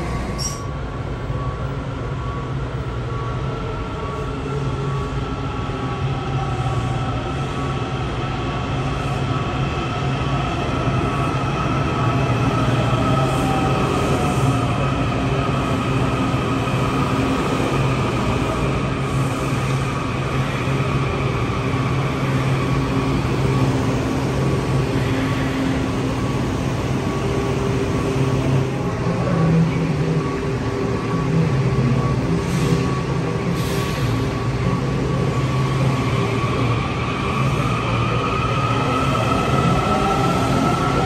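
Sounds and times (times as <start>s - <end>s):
railcar electrical hum: 0.0s - 41.0s.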